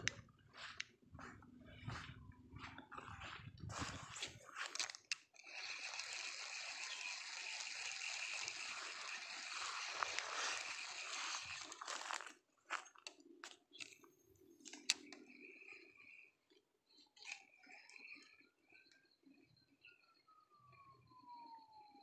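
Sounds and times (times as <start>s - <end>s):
fishing reel whirring: 3.8s - 12.3s, 16.9s - 18.5s
fishing reel clicking: 4.2s - 12.1s, 16.9s - 18.4s.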